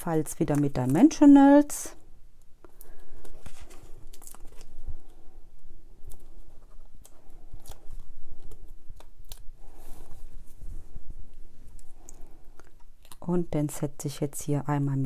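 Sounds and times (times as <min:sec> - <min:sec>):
paper rustling and crinkling: 0:02.9 - 0:05.2.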